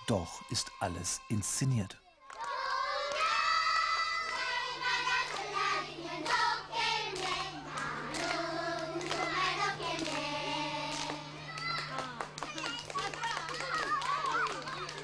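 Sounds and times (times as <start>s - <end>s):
children singing together: 2.4s - 11.9s
hand claps: 3.9s - 5.6s, 7.1s - 10.3s, 10.9s - 15.0s.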